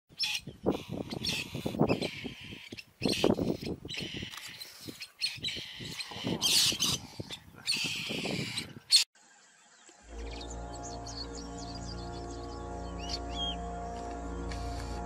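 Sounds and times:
bird chirping and squawking: 0:00.1 - 0:09.1.

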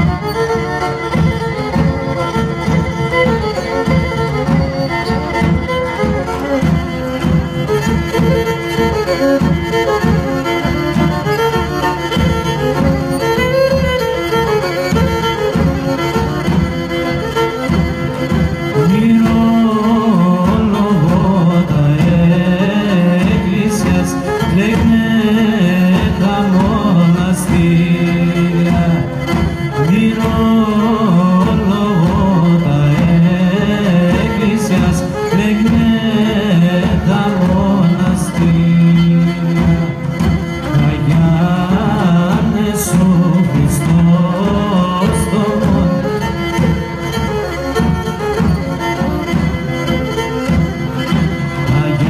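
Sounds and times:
large drum beating rhythm: 0:00.0 - 0:52.0
man singing: 0:18.7 - 0:46.6, 0:51.6 - 0:52.0.

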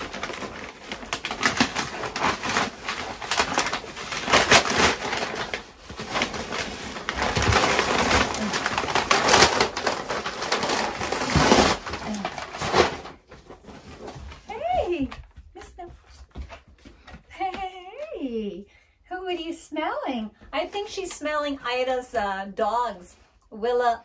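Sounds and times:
packing tape ripping: 0:00.0 - 0:13.2
cardboard and paper rustling: 0:00.0 - 0:17.7.

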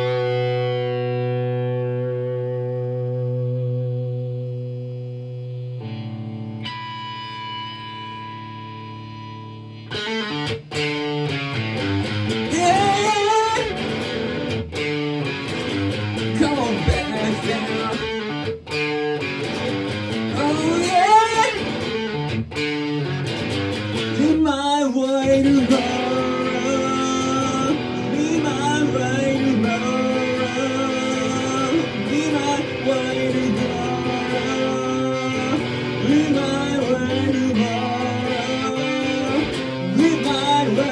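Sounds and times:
electric guitar strumming: 0:00.0 - 0:40.9
man singing: 0:12.4 - 0:13.8, 0:16.2 - 0:18.4, 0:20.2 - 0:21.8, 0:24.0 - 0:40.9.

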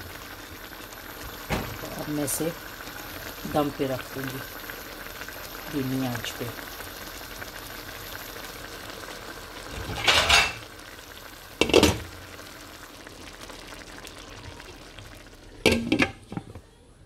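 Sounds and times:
pot bubbling on stove: 0:00.0 - 0:16.8.

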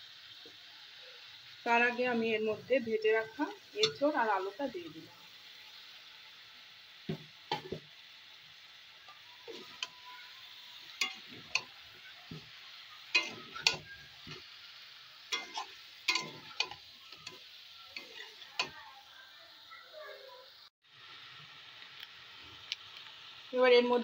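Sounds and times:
food sizzling in a pan: 0:00.0 - 0:24.0
spatula scraping a pan: 0:09.1 - 0:14.5, 0:15.3 - 0:18.9.

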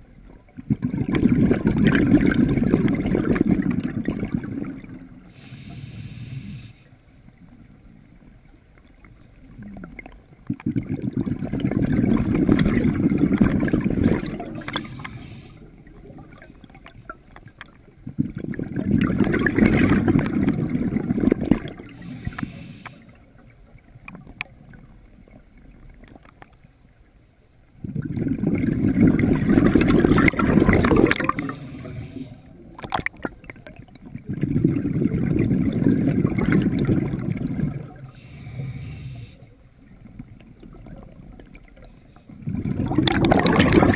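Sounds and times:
scuba exhale bubbles: 0:00.5 - 0:06.8, 0:09.4 - 0:23.2, 0:27.8 - 0:43.9.

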